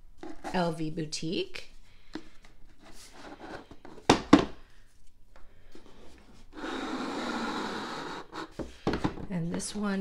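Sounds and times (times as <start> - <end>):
lid rubbing as it slides off: 6.4 - 8.6.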